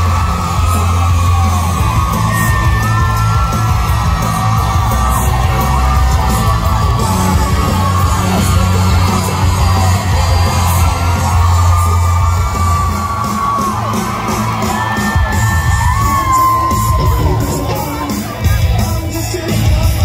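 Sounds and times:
deep bass drone: 0.0s - 13.2s
crowd yelling and whooping: 0.0s - 20.0s
rock band playing loud: 0.0s - 20.0s.

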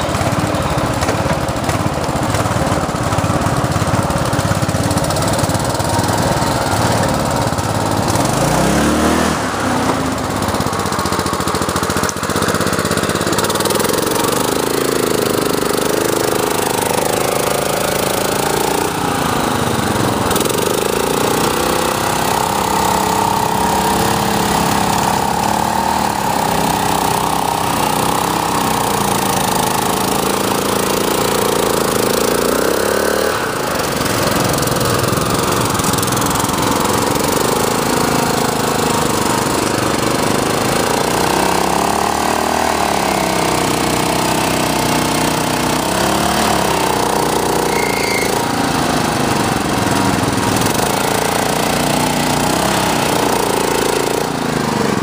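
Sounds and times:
lawn mower engine running hard: 0.0s - 55.0s.

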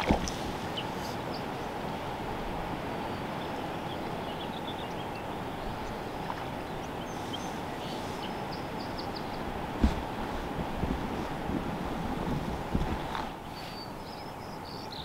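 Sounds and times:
river water rushing: 0.0s - 14.1s
faint bird chirps: 13.4s - 15.0s.

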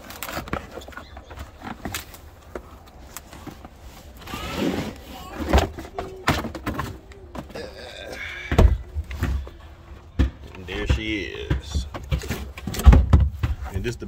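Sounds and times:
cardboard box rustling and scraping: 0.0s - 7.0s
dull thumps: 8.4s - 13.9s.

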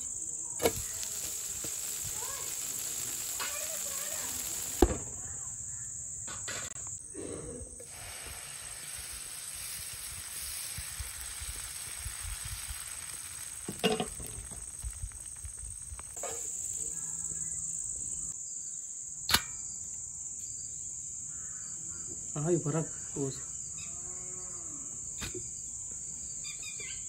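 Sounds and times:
crickets chirring: 0.0s - 27.0s
broad hiss: 0.6s - 5.3s, 7.8s - 17.7s.

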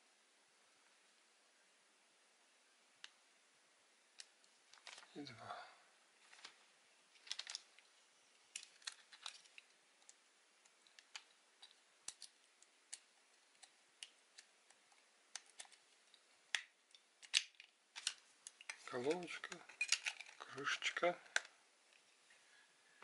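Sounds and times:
plastic parts clicking and tapping: 7.2s - 7.9s, 8.5s - 22.0s.

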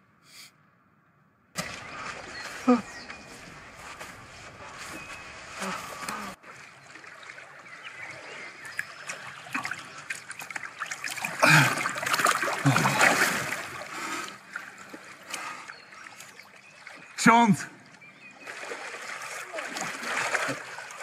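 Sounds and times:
water splashing and sloshing: 1.6s - 21.0s
man grunting: 11.4s - 11.8s.

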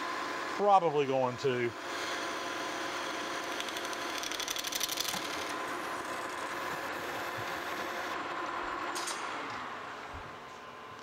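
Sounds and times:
metal lathe humming: 1.7s - 10.1s.

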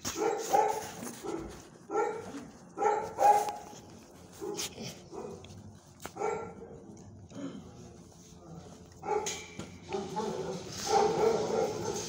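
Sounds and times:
dogs barking: 0.0s - 7.0s, 9.0s - 12.0s.

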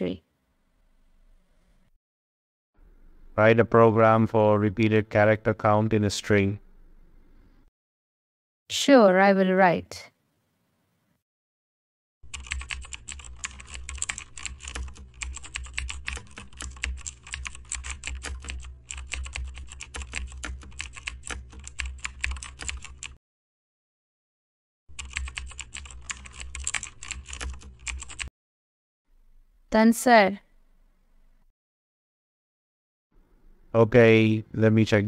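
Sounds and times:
rapid keyboard typing: 12.2s - 23.2s, 24.9s - 28.3s.

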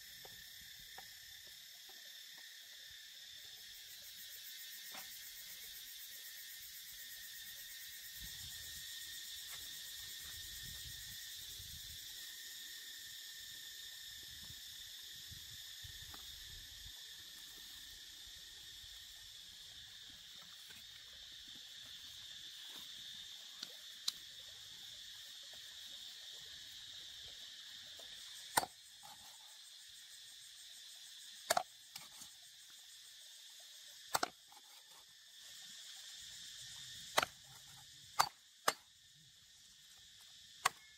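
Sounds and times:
insects chirping: 0.0s - 40.9s
cleaver chopping onto wooden block: 34.1s - 34.3s.

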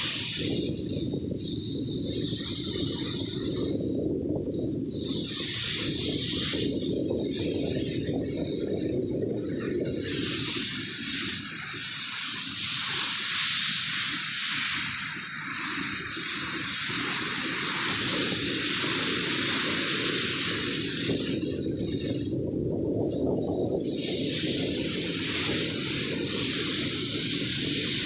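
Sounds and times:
wind and sea water rushing: 0.0s - 28.0s.

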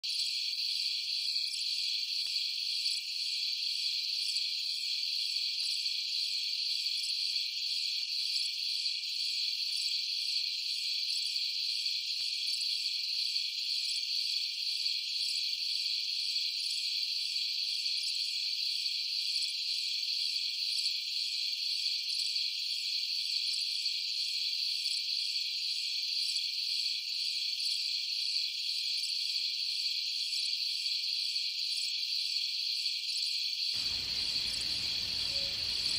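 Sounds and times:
high-pitched insect chorus: 0.1s - 35.9s.

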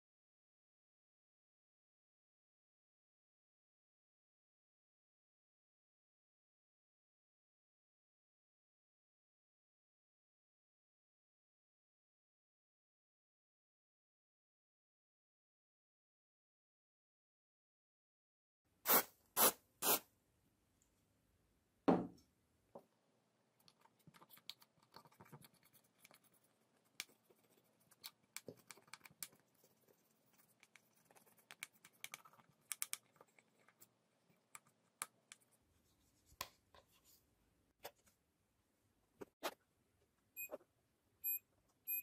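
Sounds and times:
knock: 21.9s - 22.2s
cotton swab scrubbing circuit board: 23.6s - 37.2s.

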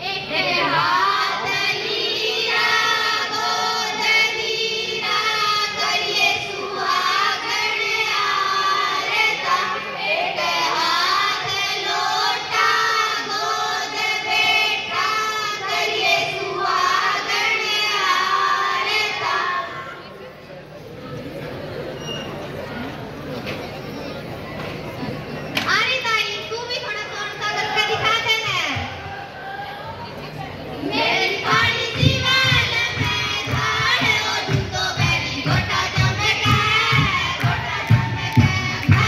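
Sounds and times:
women singing folk song: 30.9s - 39.0s.

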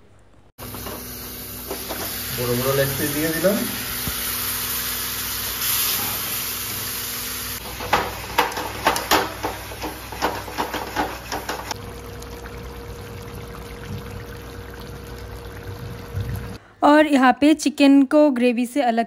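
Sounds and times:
chicken sizzling in a pan: 0.6s - 11.8s.

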